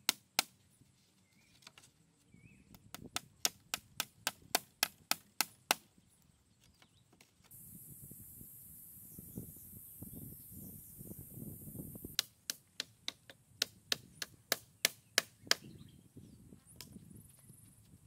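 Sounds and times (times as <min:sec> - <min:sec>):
steady high hiss: 0:07.5 - 0:12.4.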